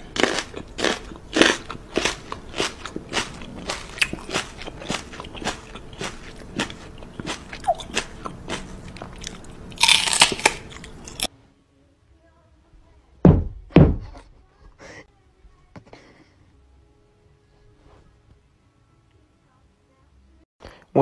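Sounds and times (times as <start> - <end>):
dog teeth clicking and crunching: 0.0 - 11.3
heavy thumps: 13.2 - 14.3.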